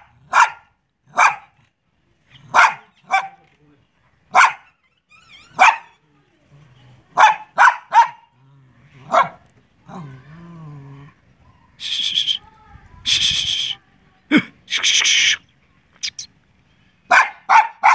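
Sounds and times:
dog barking: 0.0s - 1.6s, 2.5s - 3.4s, 4.3s - 4.8s, 5.5s - 5.9s, 7.2s - 8.3s, 9.1s - 9.4s, 17.1s - 17.9s
dog whining: 4.6s - 6.0s.

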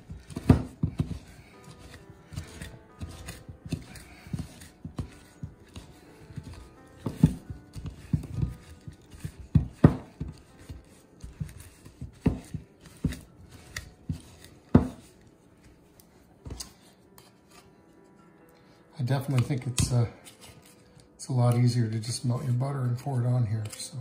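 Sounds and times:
pastry blender scraping a bowl: 0.0s - 15.1s.

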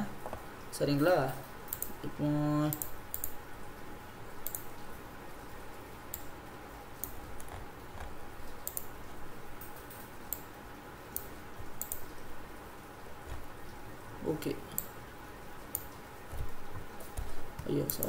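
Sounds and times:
faint steady hum: 0.0s - 18.0s
computer mouse clicking: 1.7s - 2.0s, 2.7s - 3.4s, 4.4s - 4.7s, 6.1s - 6.3s, 7.0s - 8.9s, 11.1s - 12.1s, 15.7s - 18.0s.

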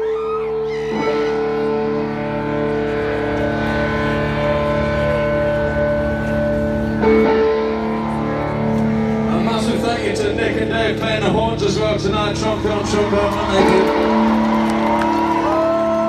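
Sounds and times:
crowd whooping: 0.0s - 5.7s, 7.1s - 9.4s, 12.6s - 16.0s
rock band guitar chords: 0.6s - 16.0s.

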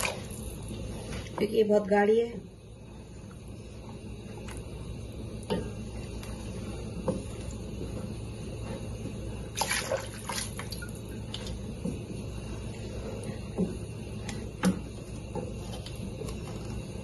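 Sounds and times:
steady low hum: 0.0s - 17.0s.

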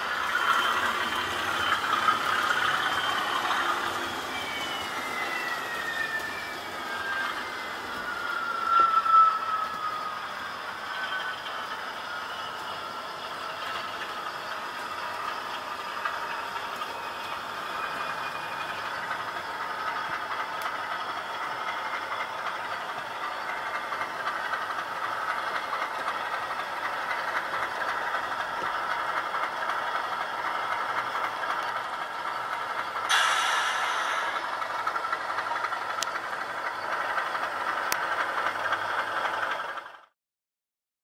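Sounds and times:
model train motor whirring: 0.0s - 9.0s
wheels rattling over rail joints: 0.0s - 40.1s.

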